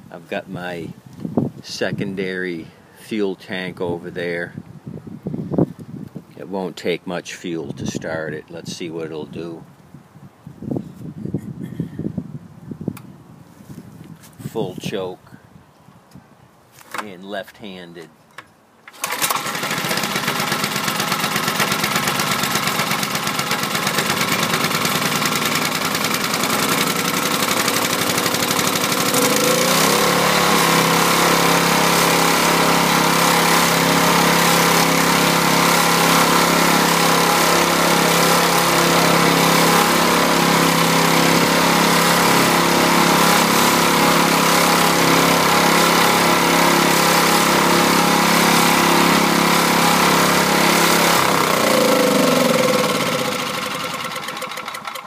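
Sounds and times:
generator engine running: 0:18.9 - 0:55.0.

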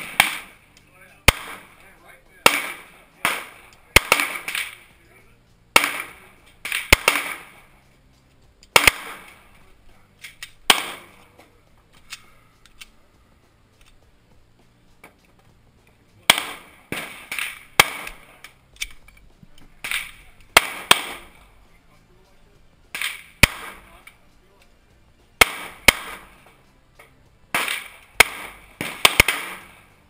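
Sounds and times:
pistol shots: 0:00.0 - 0:00.6, 0:01.2 - 0:01.8, 0:02.4 - 0:04.9, 0:05.7 - 0:07.7, 0:08.7 - 0:09.6, 0:10.2 - 0:11.3, 0:16.2 - 0:19.0, 0:19.8 - 0:21.5, 0:22.9 - 0:24.1, 0:25.4 - 0:26.5, 0:27.5 - 0:30.0.

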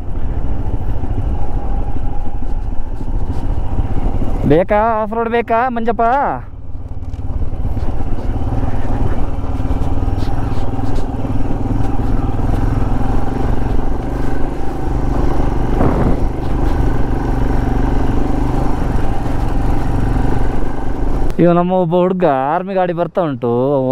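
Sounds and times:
motorcycle engine running: 0:00.0 - 0:21.4
wind noise on microphone: 0:15.6 - 0:17.1.

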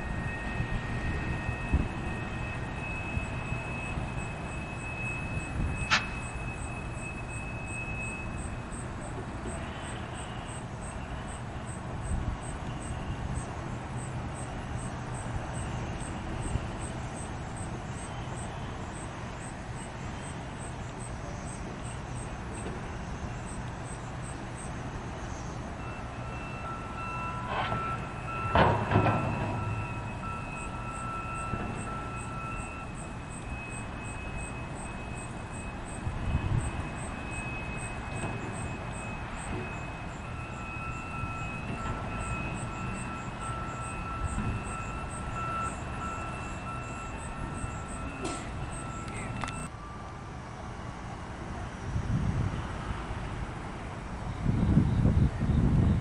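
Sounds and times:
freight train rumbling on rails: 0:00.0 - 0:56.0
high steady tone: 0:25.8 - 0:50.1
loud clunk: 0:27.5 - 0:29.8, 0:48.2 - 0:48.5.

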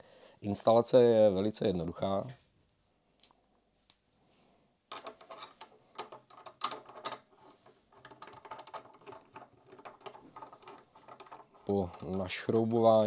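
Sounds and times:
metallic clicks and scrapes: 0:04.9 - 0:12.7.

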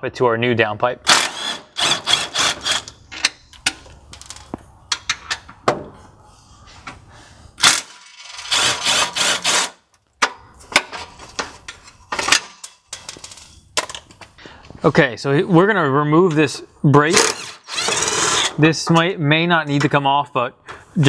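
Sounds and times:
impact driver running: 0:17.2 - 0:18.6.

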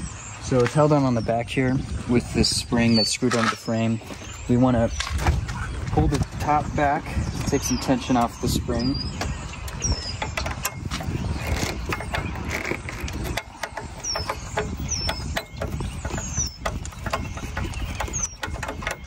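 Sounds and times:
bird chirps: 0:00.0 - 0:19.0
screwdriver metallic clicks and rattles: 0:09.2 - 0:19.0.

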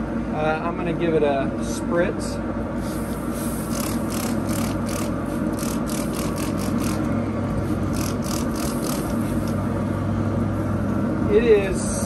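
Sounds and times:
lawn mower engine running: 0:03.7 - 0:09.8.

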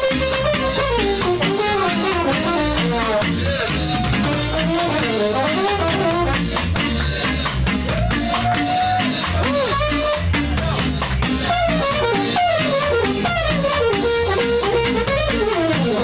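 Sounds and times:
held horn note: 0:00.0 - 0:03.4, 0:04.2 - 0:06.6, 0:11.5 - 0:16.0
live ska band playing: 0:00.0 - 0:16.0.

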